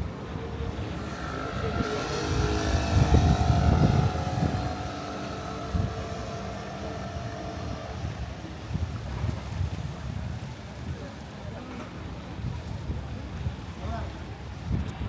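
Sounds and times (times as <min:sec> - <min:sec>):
engine running: 0:00.0 - 0:10.0
wind on microphone: 0:00.0 - 0:15.0.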